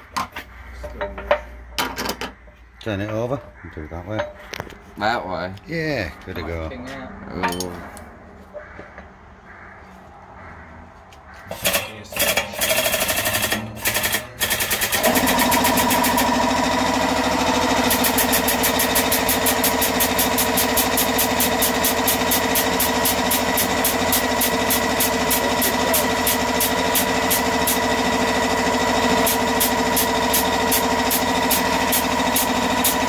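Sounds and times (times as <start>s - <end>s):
hydraulic pump pulsing: 11.5s - 33.0s.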